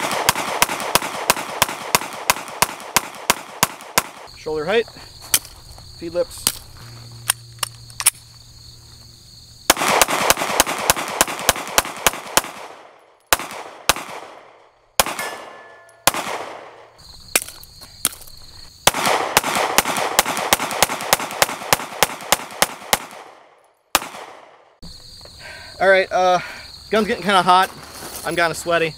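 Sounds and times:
pistol shots echoing: 0.0s - 4.3s, 9.7s - 16.9s, 18.8s - 24.7s
faint crickets: 0.0s - 28.9s.

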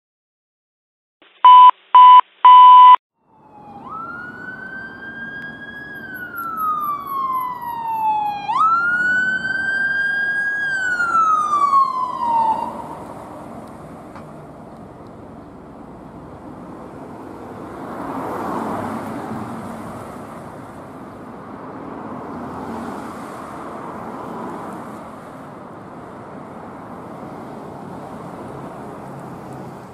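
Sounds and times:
loud short beeps: 1.3s - 3.0s
traffic noise: 1.4s - 29.9s
ambulance siren wailing: 3.2s - 13.4s.

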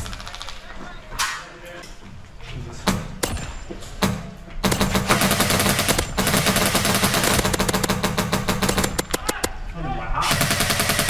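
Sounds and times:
airsoft rifles firing: 0.0s - 0.8s, 3.0s - 9.6s, 10.2s - 11.0s.

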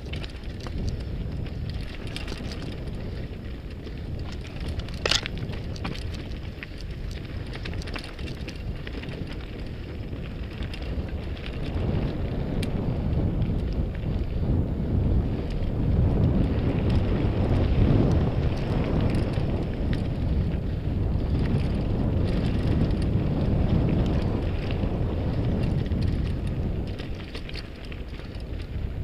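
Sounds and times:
tyres crunching over gravel: 0.0s - 12.7s
bike rattling: 0.0s - 29.0s
wind buffeting microphone: 0.0s - 29.0s.

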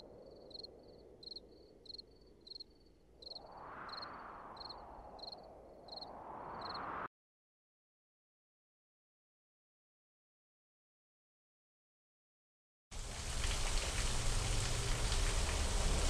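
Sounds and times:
cricket chirping: 0.0s - 6.9s
rushing noise: 3.2s - 7.1s.

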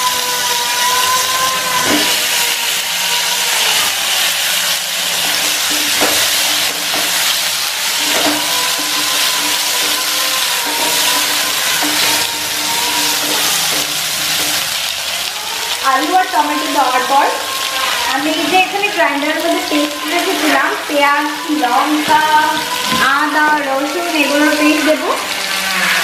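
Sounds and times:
vegetables sizzling in oil: 0.0s - 26.0s
wooden spatula knocking pan: 5.2s - 15.3s.

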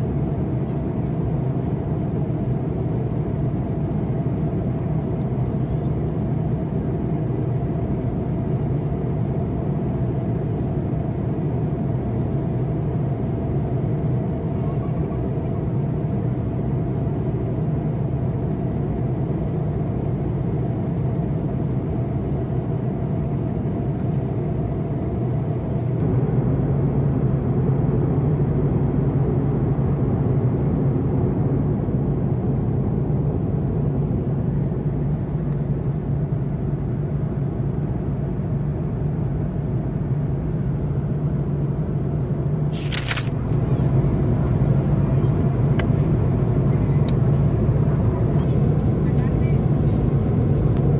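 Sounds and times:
jet engine rumble in cabin: 0.0s - 50.9s
faint hum: 42.7s - 50.9s.

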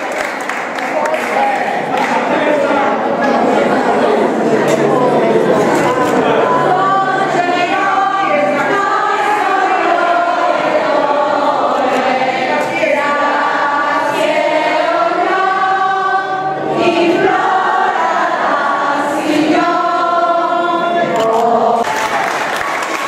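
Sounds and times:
voices singing a slow hymn: 2.2s - 22.6s.

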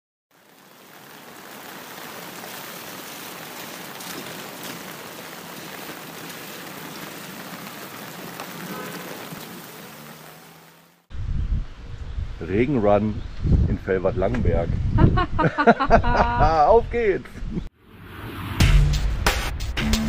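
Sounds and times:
rain on tree leaves: 0.3s - 11.1s.

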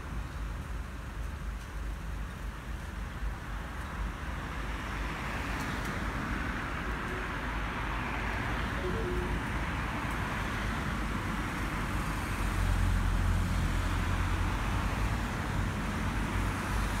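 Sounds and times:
road traffic noise: 0.0s - 17.0s.

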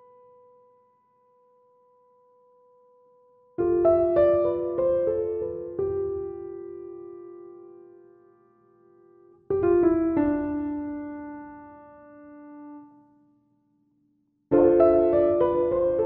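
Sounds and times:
slow piano music: 0.0s - 1.5s, 2.3s - 13.3s, 14.5s - 16.0s.

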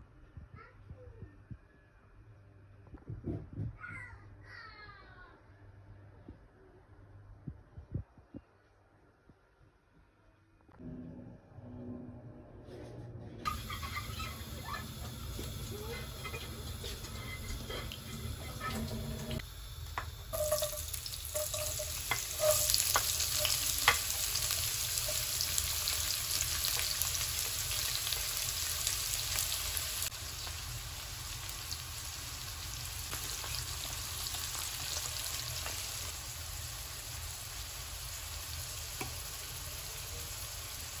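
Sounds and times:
onions sizzling in oil: 13.5s - 41.0s
taps and clatters in a pan: 15.4s - 25.2s, 39.0s - 39.2s.

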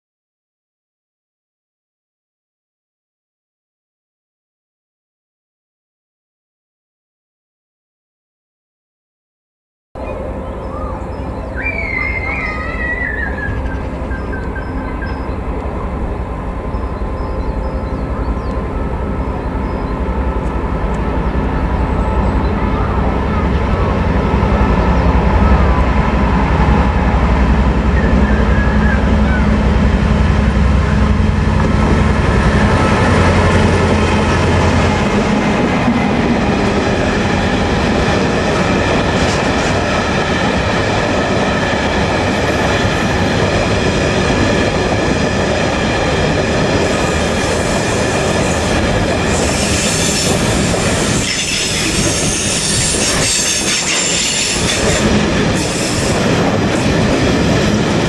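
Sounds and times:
diesel locomotive engine: 10.0s - 58.0s
train wheels rumbling and clattering: 10.3s - 58.0s.

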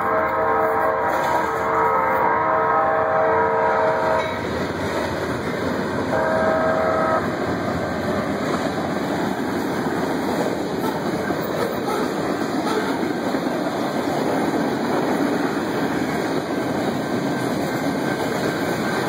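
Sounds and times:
locomotive horn blasts: 0.0s - 4.4s, 6.1s - 7.3s
freight cars rumbling and rattling: 4.2s - 19.0s.

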